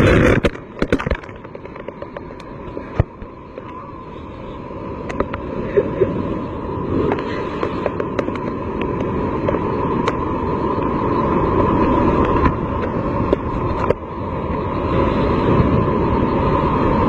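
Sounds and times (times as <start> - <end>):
surf crashing over rocks: 0.0 - 17.0.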